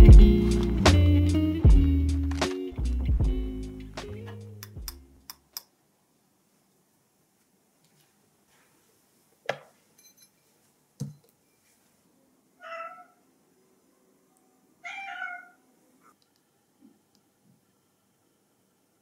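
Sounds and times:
cat meowing: 12.6s - 13.2s, 14.8s - 15.6s.

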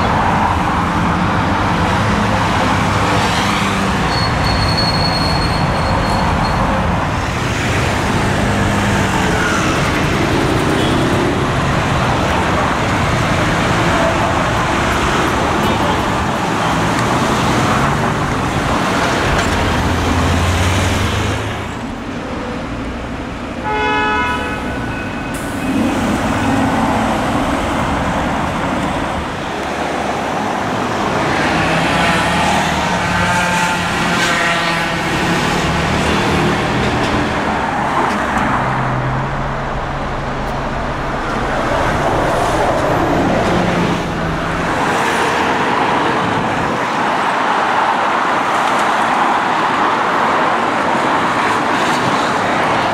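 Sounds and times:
car engines passing: 5.6s - 23.6s, 24.5s - 52.9s
car horn toot: 23.6s - 25.4s.

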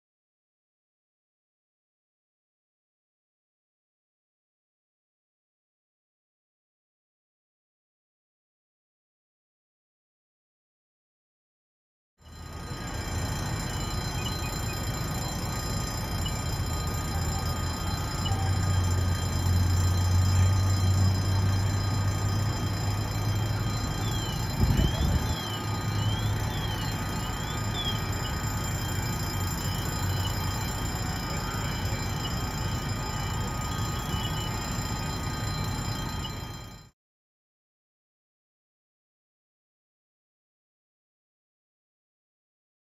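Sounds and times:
fire engines idling: 12.3s - 36.9s
faint warbling tone: 12.8s - 36.8s.

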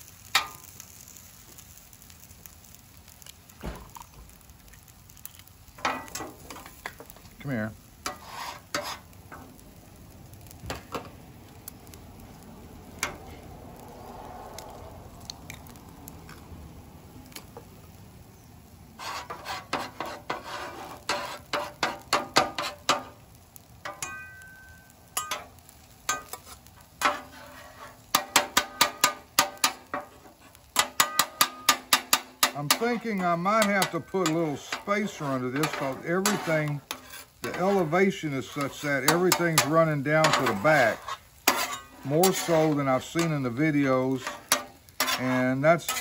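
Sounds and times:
eggs sizzling on a griddle: 0.0s - 46.0s
metal spatulas scraping griddle: 5.8s - 6.8s, 8.0s - 9.5s, 19.0s - 23.1s, 25.2s - 46.0s.

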